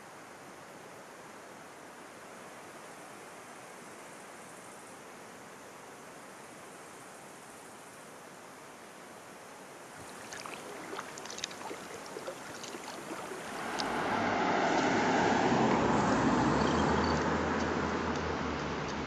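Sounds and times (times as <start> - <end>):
hiss of water and wind: 0.0 - 16.6
water splashing and trickling: 9.9 - 16.6
low engine hum: 10.0 - 19.0
road traffic noise: 10.0 - 19.0.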